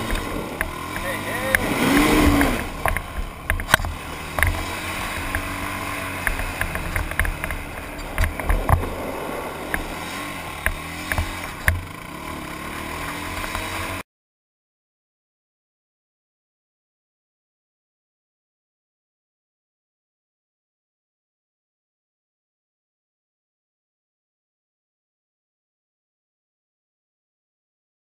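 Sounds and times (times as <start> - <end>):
sharp knocks and clatters: 0.0 - 9.0, 9.7 - 12.0
quad bike engine revving: 0.0 - 14.0.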